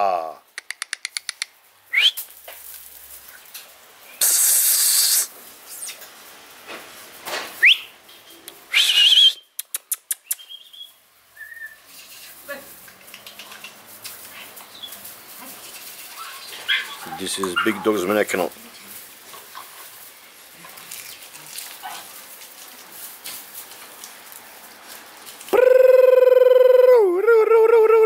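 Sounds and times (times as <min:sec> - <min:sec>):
short sharp rising whistles: 0:01.9 - 0:02.2, 0:08.7 - 0:09.5
loud hissy squeaks: 0:04.2 - 0:06.0
quick clicks: 0:09.6 - 0:10.5.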